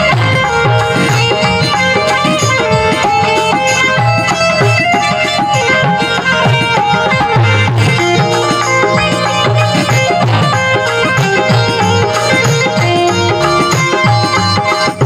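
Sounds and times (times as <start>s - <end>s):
dholak drum rhythm: 0.0s - 15.0s
harmonium melody: 0.0s - 15.0s.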